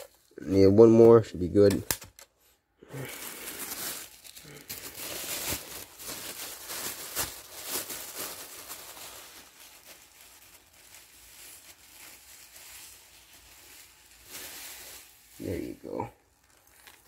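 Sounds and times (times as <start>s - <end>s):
plastic rustling: 2.9s - 17.0s
soil pattering into plastic bottle: 16.4s - 17.0s.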